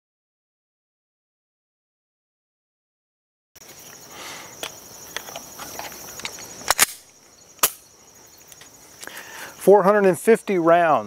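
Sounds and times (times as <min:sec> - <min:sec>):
chorus of insects: 0:03.6 - 0:11.0
pistol and magazine clicking: 0:06.2 - 0:07.8.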